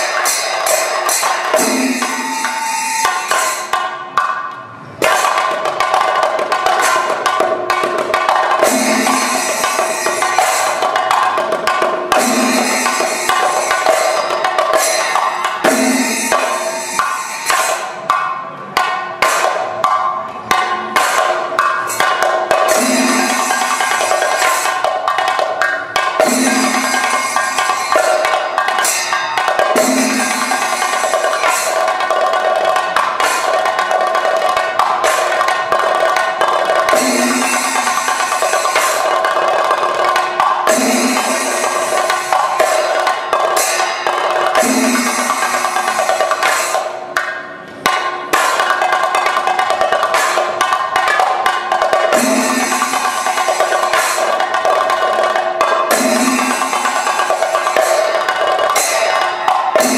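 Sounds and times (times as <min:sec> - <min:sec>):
steady ringing tone: 0:00.0 - 0:03.8, 0:12.1 - 0:18.1, 0:21.8 - 0:25.2, 0:26.2 - 0:33.2, 0:35.6 - 0:46.5
drums beaten with sticks: 0:00.0 - 0:59.9.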